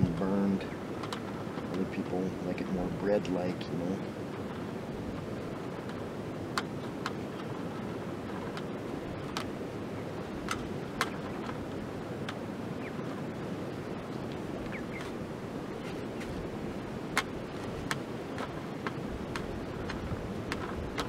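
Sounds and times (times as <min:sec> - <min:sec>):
rushing background noise: 0:00.0 - 0:21.0.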